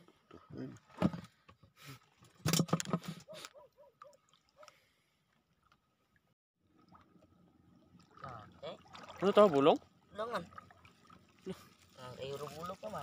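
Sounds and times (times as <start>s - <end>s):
feet wading through water: 6.7s - 13.0s.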